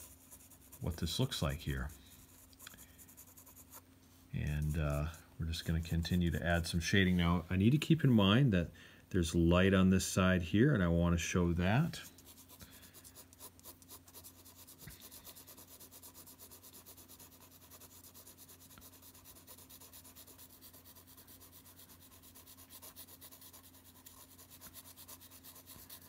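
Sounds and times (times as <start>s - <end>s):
pencil scratching on paper: 0.0s - 3.8s, 11.9s - 26.0s.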